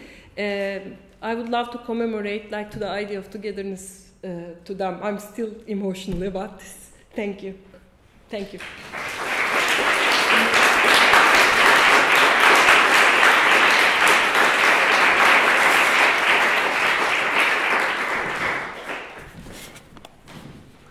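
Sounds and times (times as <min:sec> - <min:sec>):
audience applauding: 0:08.6 - 0:19.4.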